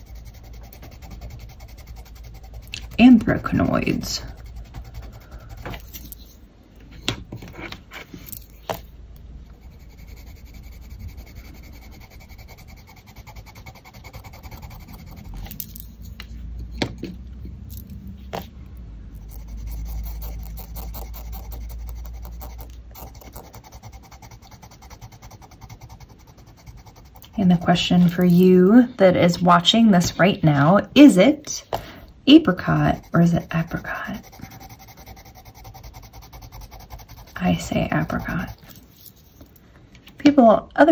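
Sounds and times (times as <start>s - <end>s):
colored pencil scratching on paper: 0.0s - 6.4s, 9.5s - 16.2s, 19.2s - 31.1s, 32.4s - 39.4s.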